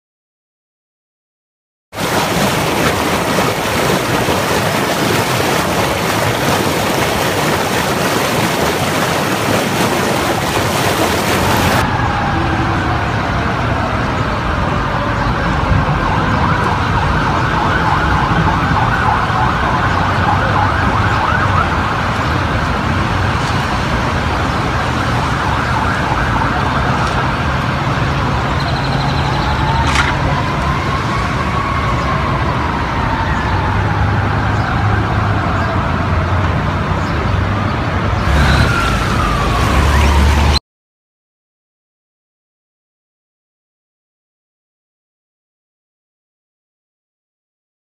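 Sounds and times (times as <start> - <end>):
steady rushing noise: 2.0 - 13.0
emergency siren wailing: 2.0 - 37.0, 38.1 - 40.6.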